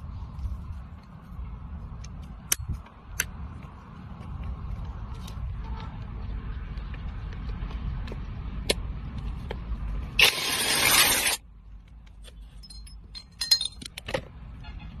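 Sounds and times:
light metallic clinks: 0:12.6 - 0:14.0.

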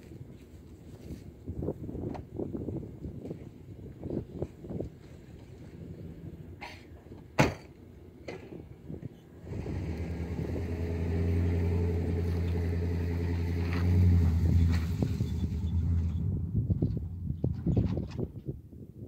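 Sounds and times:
vehicle engine starting and running: 0:09.3 - 0:18.4.

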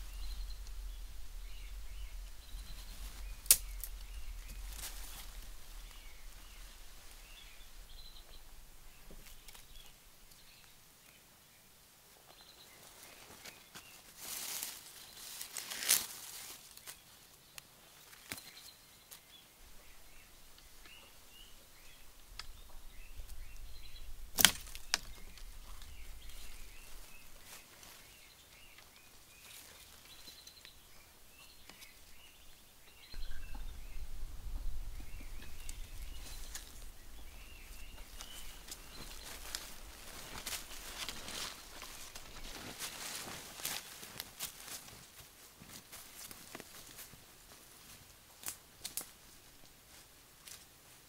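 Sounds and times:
footsteps rustling dry bamboo litter: 0:00.0 - 0:10.8, 0:12.2 - 0:51.0
small birds chirping: 0:00.0 - 0:44.7
sharp snap: 0:03.3 - 0:05.4.

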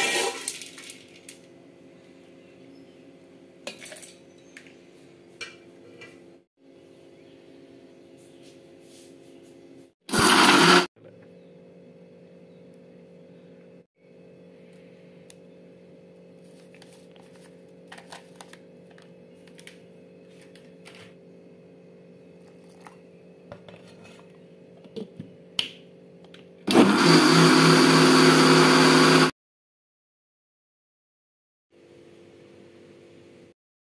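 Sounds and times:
electric mixer grinder running: 0:10.1 - 0:10.9, 0:26.7 - 0:29.3.

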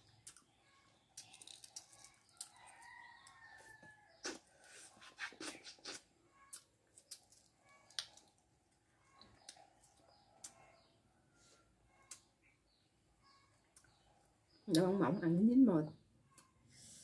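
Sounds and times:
mouth sounds of eating: 0:00.1 - 0:08.4.

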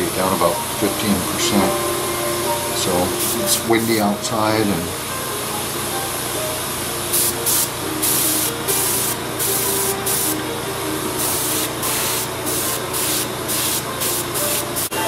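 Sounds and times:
airbrush spraying hissing air: 0:02.4 - 0:04.2, 0:07.1 - 0:10.4, 0:11.2 - 0:15.0.

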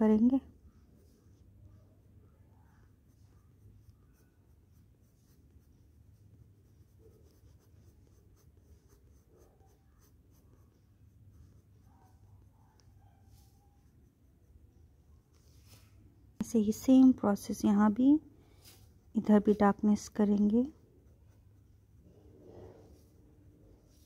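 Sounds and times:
pencil scratching on paper: 0:02.3 - 0:15.9, 0:18.7 - 0:23.2.

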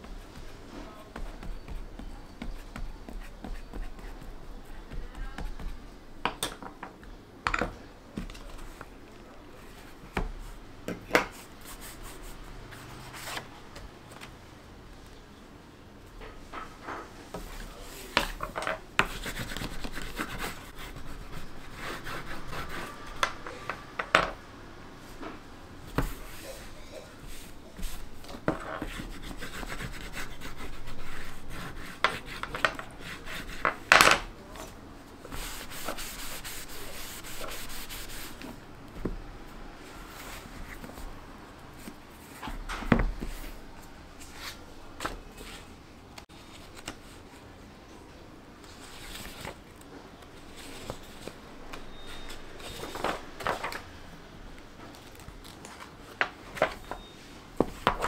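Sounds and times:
bone folder rubbing paper: 0:26.1 - 0:33.8, 0:35.2 - 0:38.5
paper handling: 0:48.6 - 0:53.9.

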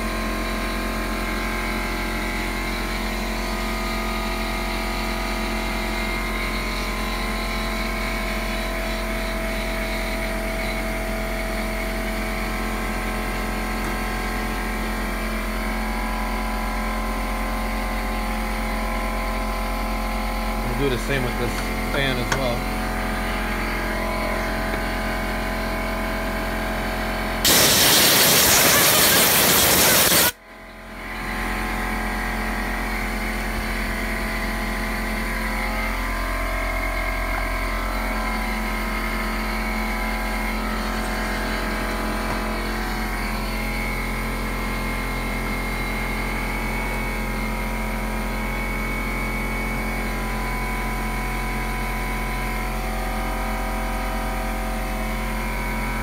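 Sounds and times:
steady mechanical hum: 0:00.0 - 0:56.0
blast of air through fan: 0:27.4 - 0:30.4.

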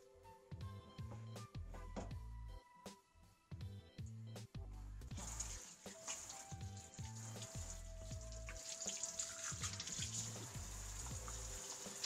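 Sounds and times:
background music with bass line: 0:00.0 - 0:12.0
faucet spray on hands in sink: 0:05.1 - 0:12.0.

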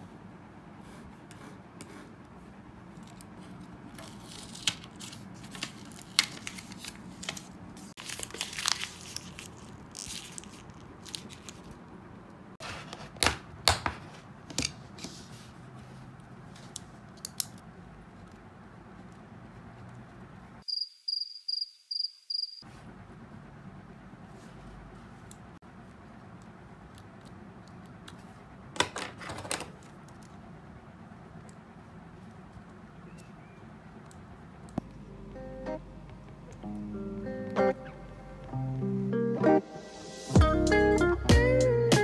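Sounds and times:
paper crumpling: 0:04.0 - 0:11.8.

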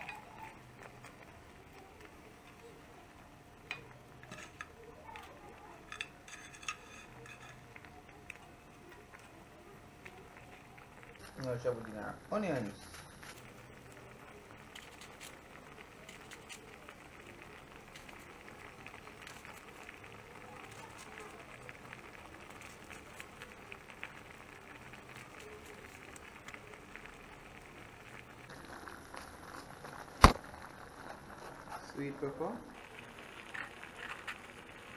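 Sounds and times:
small pops and crackles: 0:00.0 - 0:34.9
stew bubbling in a frying pan: 0:00.0 - 0:34.9.

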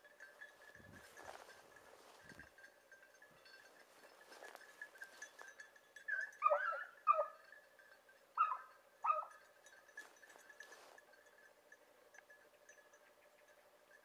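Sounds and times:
dog yelping: 0:06.1 - 0:07.4, 0:08.4 - 0:09.4.

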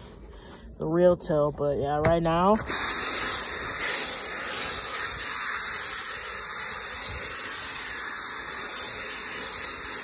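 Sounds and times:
drill brush scrubbing upholstery: 0:02.6 - 0:10.0.

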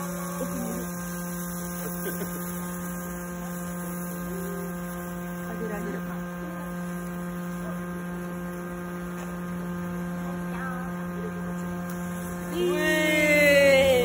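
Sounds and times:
steady electrical hum: 0:00.0 - 0:14.0
faint voice: 0:12.5 - 0:14.0
loud voice: 0:12.5 - 0:14.0.

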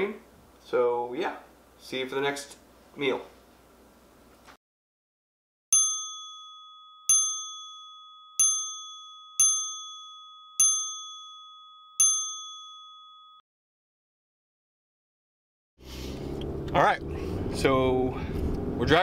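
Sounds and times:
bright chime dings: 0:05.7 - 0:13.4.

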